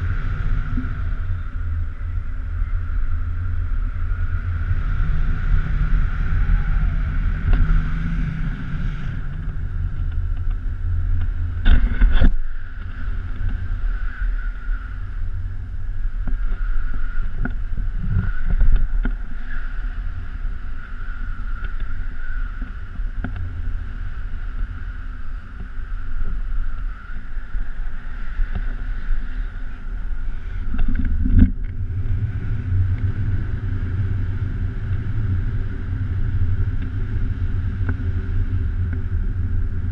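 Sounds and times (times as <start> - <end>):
wind buffeting microphone: 0.0 - 39.9
faint steady whistle: 13.6 - 15.6, 16.3 - 17.5, 18.2 - 23.1, 23.9 - 30.8.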